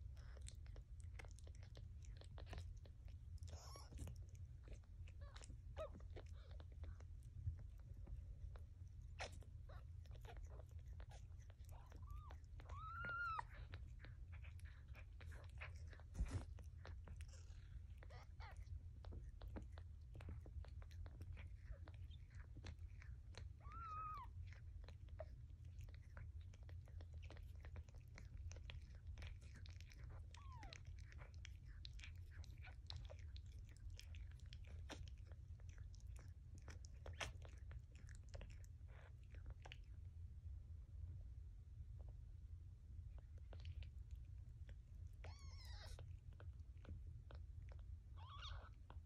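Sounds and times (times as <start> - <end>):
cat licking kittens: 0.0 - 49.0
low steady hum: 0.0 - 49.0
kitten mewing: 9.2 - 16.5, 23.6 - 24.4, 45.2 - 46.0, 48.2 - 48.8.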